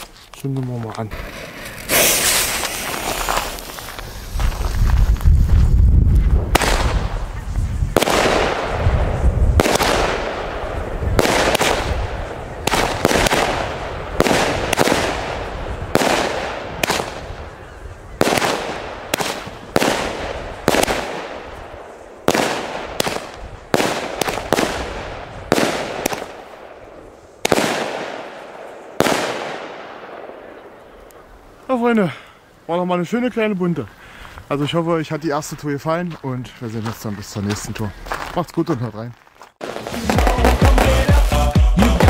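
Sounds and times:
firework bangs with crackle: 1.1s - 5.8s, 6.4s - 17.5s, 18.2s - 30.6s, 39.6s - 41.4s.

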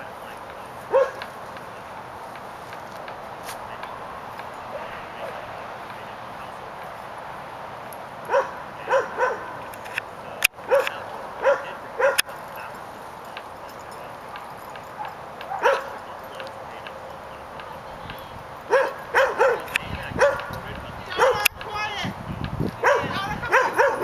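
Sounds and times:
dog barking: 0.9s - 1.3s, 8.3s - 9.6s, 10.6s - 12.4s, 14.9s - 16.0s, 18.7s - 20.5s, 21.2s - 21.5s, 22.8s - 24.0s.

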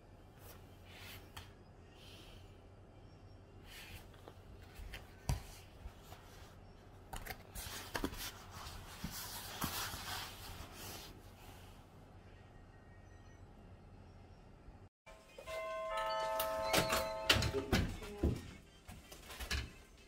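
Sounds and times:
clothing rustling on foam roller: 7.6s - 11.8s.

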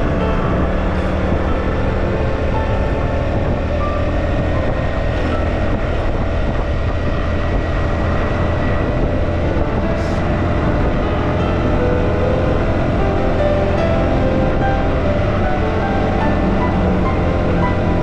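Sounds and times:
vehicle highway driving noise: 0.0s - 18.0s.

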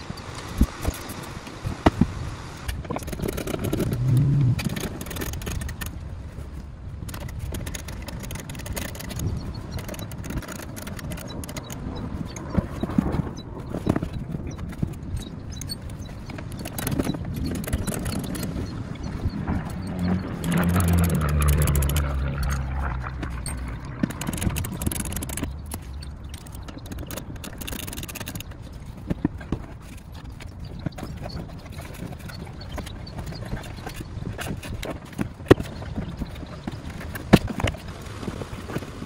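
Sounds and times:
clicks and scrapes on plastic: 1.9s - 6.0s, 7.0s - 39.0s
low hum: 2.5s - 5.9s, 15.4s - 28.8s
steady low rumble: 3.6s - 7.0s, 17.1s - 27.5s.

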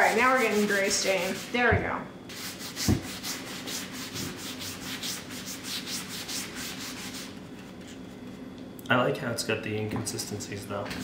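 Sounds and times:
cloth rubbing wooden board: 0.0s - 1.7s, 2.3s - 7.4s.

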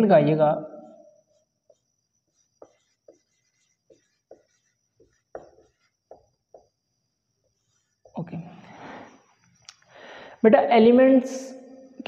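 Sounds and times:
marker pen writing on whiteboard: 1.2s - 8.5s.

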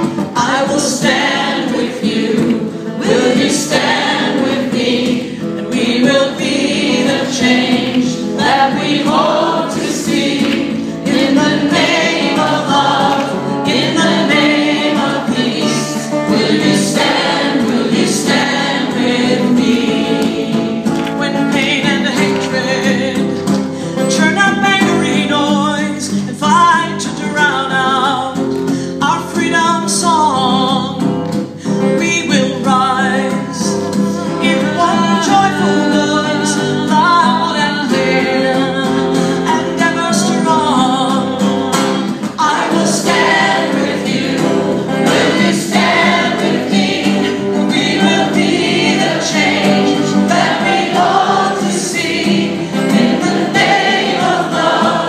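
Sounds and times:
women singing together: 0.0s - 23.4s, 34.4s - 55.0s
strummed acoustic guitar: 0.0s - 55.0s.

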